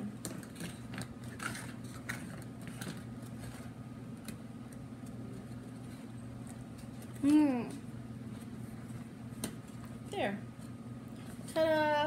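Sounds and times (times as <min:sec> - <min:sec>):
steady low hum: 0:00.0 - 0:12.0
paper and tape rustling: 0:00.3 - 0:09.0.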